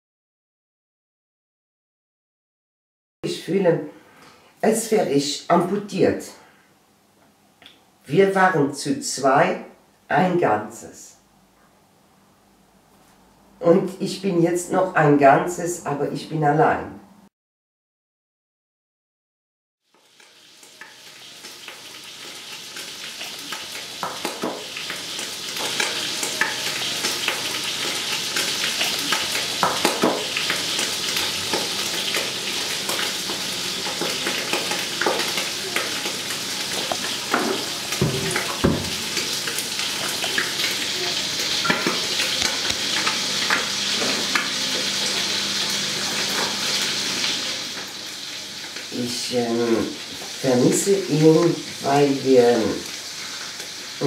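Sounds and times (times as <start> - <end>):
food sizzling in a pan: 19.8 - 54.0.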